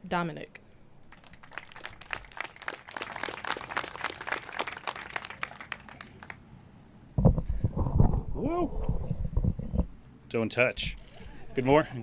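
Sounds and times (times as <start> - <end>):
people applauding: 1.1 - 6.4.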